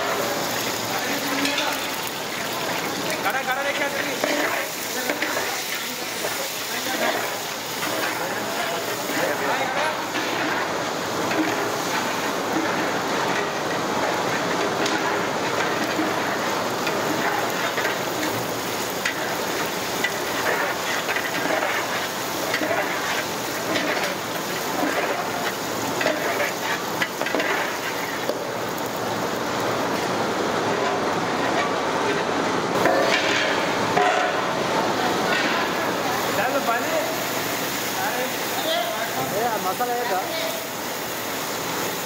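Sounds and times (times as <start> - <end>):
steady hiss: 0.0 - 42.0
ladle stirring water in a pot: 1.3 - 28.4.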